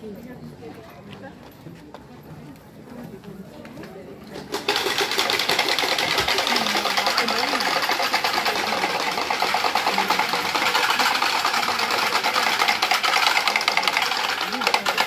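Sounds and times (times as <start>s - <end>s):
faint crowd voices: 0.0s - 15.0s
fast rattle of clicks: 4.4s - 15.0s.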